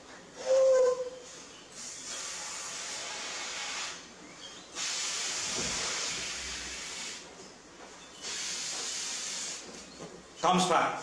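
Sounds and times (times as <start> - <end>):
air hissing out of balloon: 1.7 - 4.1, 4.7 - 7.3, 8.2 - 9.8.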